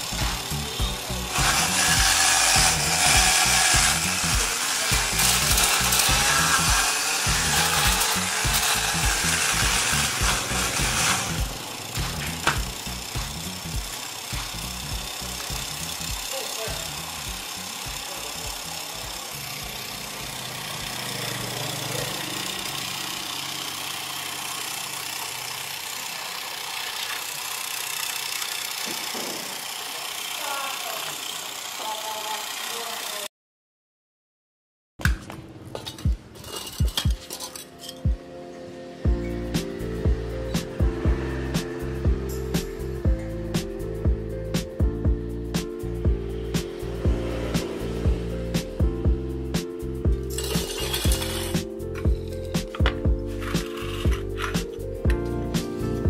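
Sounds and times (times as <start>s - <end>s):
low hum: 0.0s - 16.3s
angle grinder whirring: 0.0s - 33.3s, 50.3s - 56.0s.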